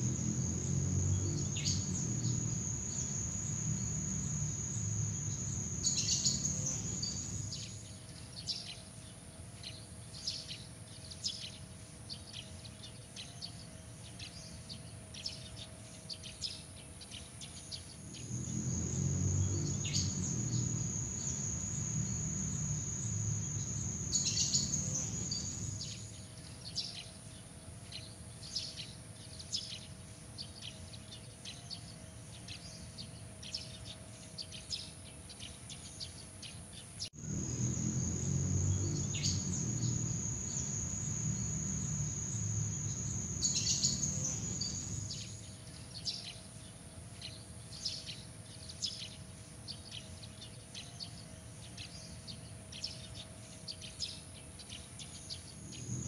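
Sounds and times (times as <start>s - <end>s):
high insect trill: 0.0s - 7.9s, 18.0s - 26.2s, 37.2s - 45.6s, 55.2s - 56.0s.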